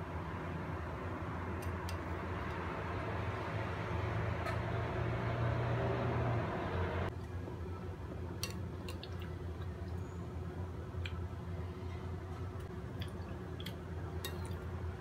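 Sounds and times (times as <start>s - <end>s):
spoon squishing wet food: 8.4s - 10.1s, 12.6s - 15.0s.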